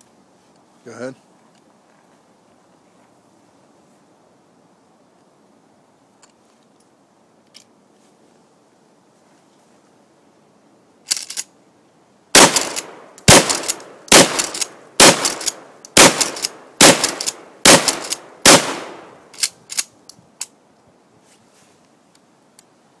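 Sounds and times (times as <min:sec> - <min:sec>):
shotgun shots: 0:12.4 - 0:19.3.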